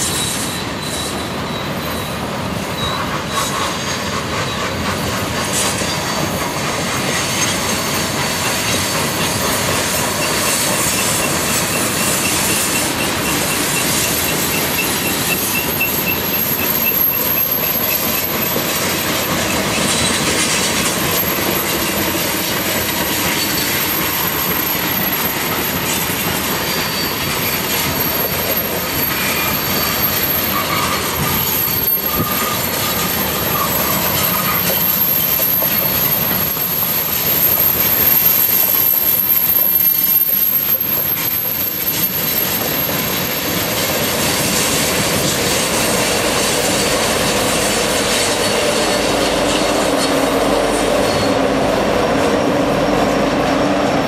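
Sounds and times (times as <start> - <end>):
diesel locomotive engines: 0.0 - 54.0
train wheels rumbling: 0.0 - 54.0
wheel flange squeal: 0.0 - 54.0.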